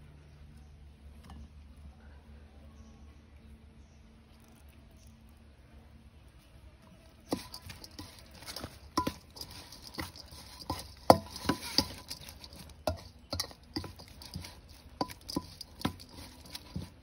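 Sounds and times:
metal spoon scraping a metal bowl: 0:07.2 - 0:17.0.

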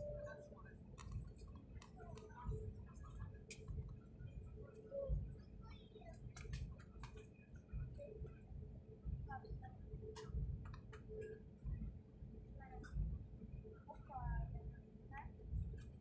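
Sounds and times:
low aircraft cabin rumble: 0:00.0 - 0:05.4.

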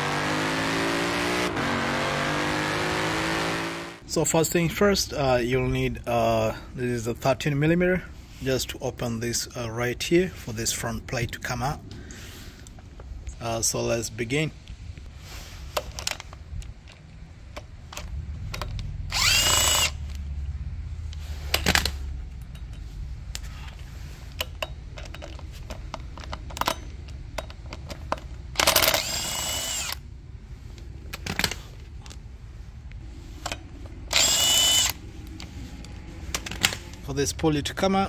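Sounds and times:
cordless power tool motor whine: 0:19.1 - 0:20.0, 0:29.0 - 0:30.0, 0:34.1 - 0:35.0.

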